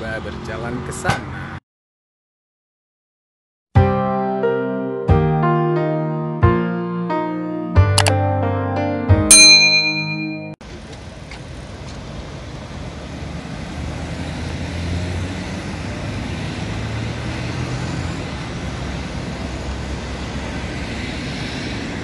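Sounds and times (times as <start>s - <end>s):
road traffic passing: 0.0s - 1.6s, 9.3s - 22.0s.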